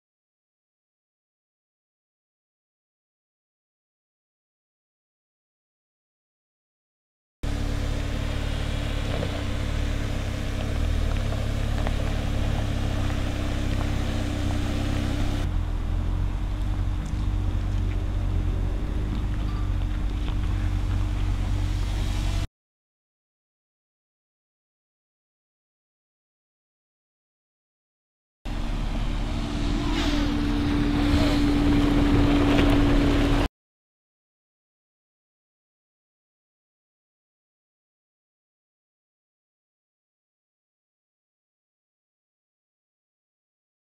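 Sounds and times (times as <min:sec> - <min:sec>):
car engine running low: 0:07.4 - 0:22.5, 0:28.5 - 0:33.5
road rumble: 0:07.4 - 0:22.5, 0:28.5 - 0:33.5
wind: 0:07.4 - 0:22.5, 0:28.5 - 0:33.5
gravel clicking under tyres: 0:07.5 - 0:22.5, 0:28.5 - 0:33.5.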